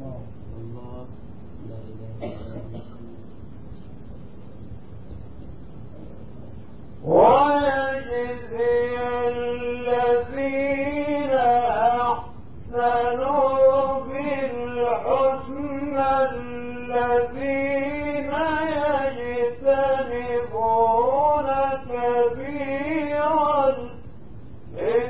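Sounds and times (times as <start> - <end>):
man chanting melodically: 7.0 - 24.0, 24.7 - 25.0.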